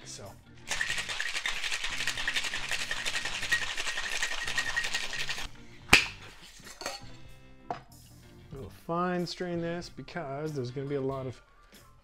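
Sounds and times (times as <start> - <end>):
ice rattling in cocktail shaker: 0.7 - 5.5.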